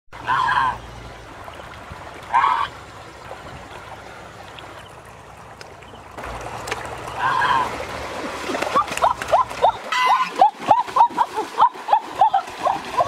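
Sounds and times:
running river water: 0:00.1 - 0:13.0
goose honking: 0:09.6 - 0:10.5.

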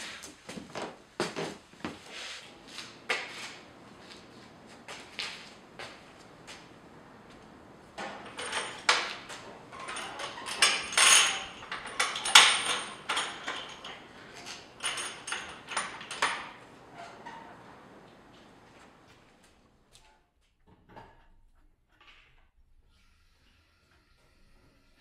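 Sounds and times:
metal latch clanks and rattles: 0:08.0 - 0:17.6.

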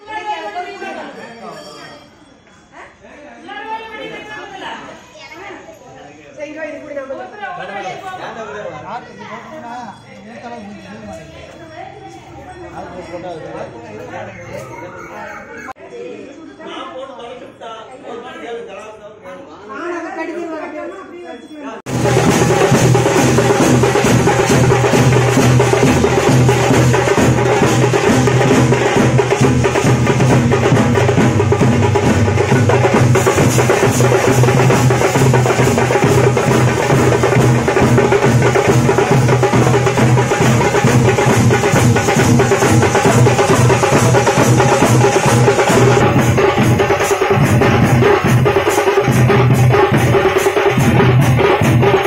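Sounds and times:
fast dense drumming: 0:21.9 - 0:52.0.

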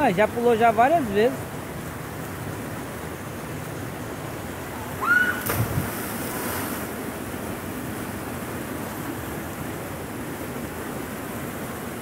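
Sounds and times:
person diving into water: 0:05.0 - 0:07.0.

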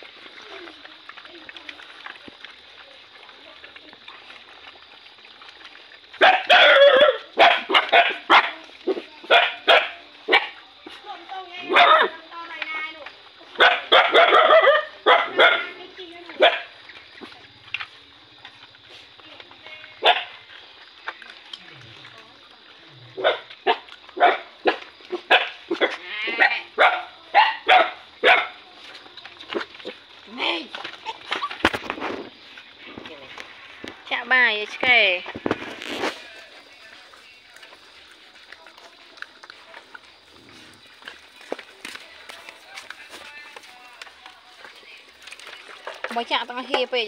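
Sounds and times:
dogs barking and yelping: 0:04.1 - 0:12.3, 0:13.2 - 0:19.2, 0:19.9 - 0:32.8
dog yelping cry: 0:06.2 - 0:10.5.

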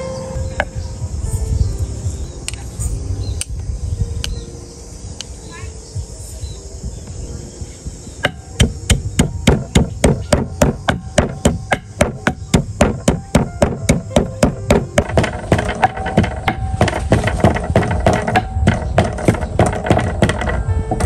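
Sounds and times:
pestle pounding in wooden mortar: 0:08.2 - 0:21.0.

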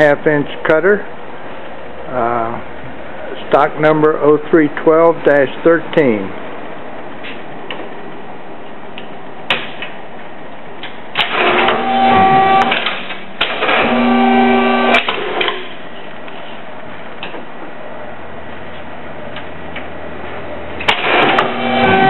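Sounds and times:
motor whine over mechanical rattle: 0:11.2 - 0:15.7, 0:20.8 - 0:22.0.

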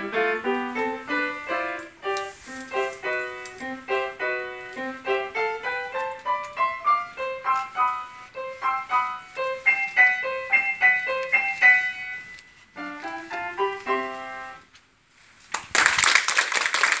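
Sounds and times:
upright piano playing: 0:00.0 - 0:14.7
audience applause: 0:15.6 - 0:17.0.

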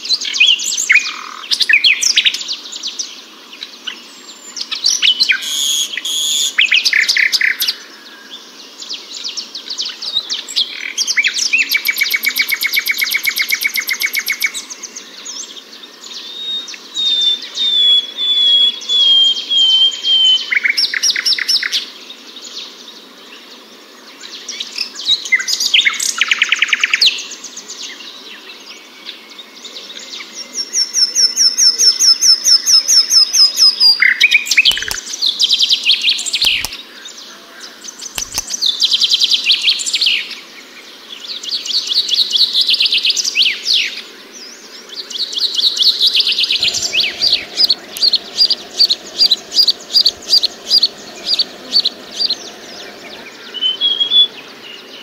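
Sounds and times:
nightingale singing: 0:16.1 - 0:21.7, 0:30.6 - 0:36.8, 0:37.8 - 0:40.2, 0:41.5 - 0:55.0.

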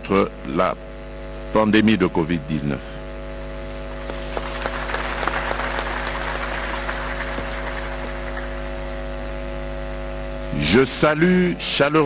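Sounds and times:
electrical hum: 0:00.0 - 0:12.0
applause: 0:04.0 - 0:09.1.

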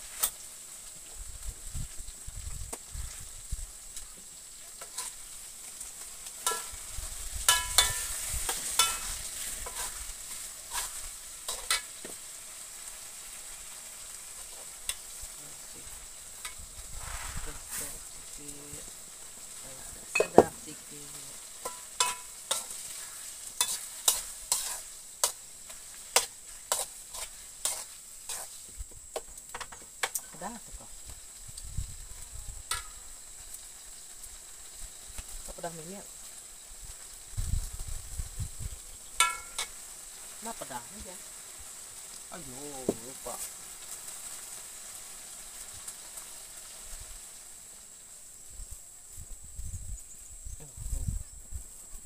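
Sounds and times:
food sizzling in hot oil: 0:00.0 - 0:52.0
metal spatula scraping a wok: 0:04.7 - 0:18.2, 0:21.3 - 0:28.8, 0:39.2 - 0:39.9.

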